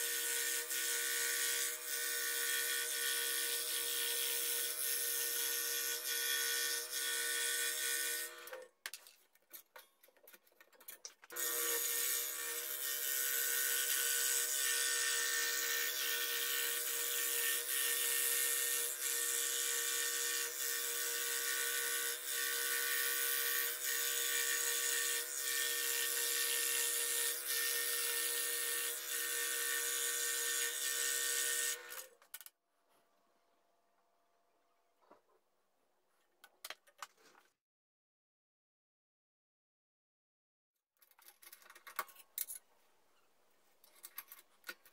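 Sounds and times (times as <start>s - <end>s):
scroll saw cutting wood: 0.0s - 8.7s, 11.3s - 32.2s.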